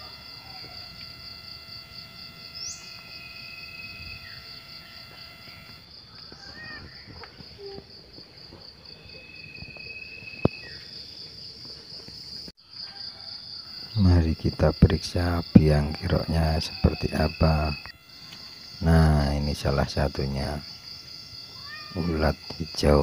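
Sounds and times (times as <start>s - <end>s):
insects trilling: 0.0s - 23.0s
bird chirps: 2.4s - 7.8s.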